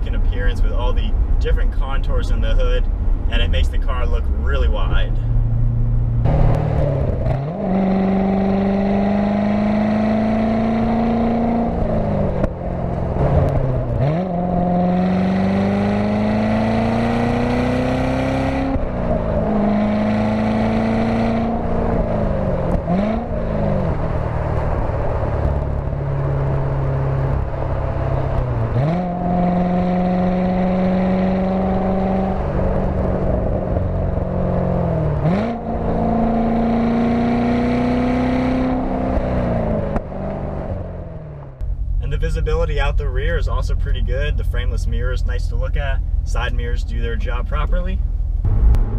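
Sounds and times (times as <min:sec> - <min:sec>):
wind and road noise: 0:00.0 - 0:48.9
car engine revving through gears: 0:05.4 - 0:41.7.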